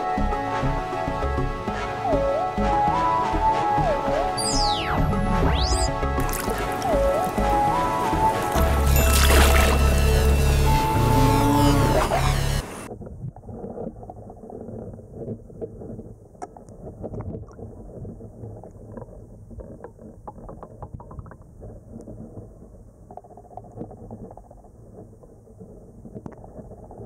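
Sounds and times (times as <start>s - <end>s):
muffled underwater river rumble: 12.9s - 27.0s
small clicks and ticks: 13.6s - 27.0s.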